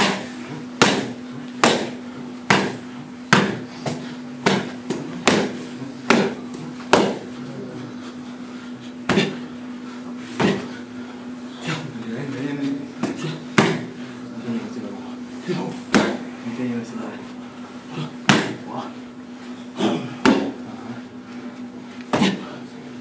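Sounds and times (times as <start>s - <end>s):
punches smacking focus mitts: 0.0s - 7.3s, 18.2s - 18.6s
steady low hum: 0.0s - 23.0s.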